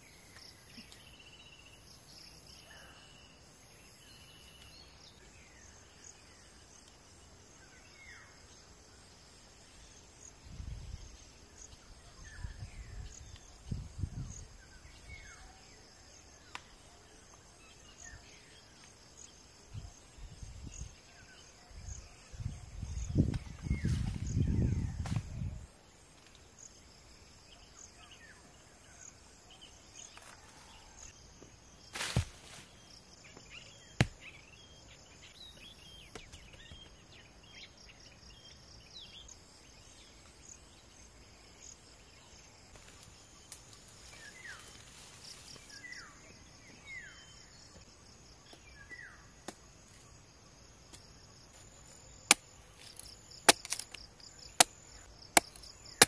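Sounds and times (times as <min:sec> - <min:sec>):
insects chirring: 0:00.0 - 0:56.0
machete chopping coconut husk: 0:32.0 - 0:32.5, 0:52.3 - 0:56.0.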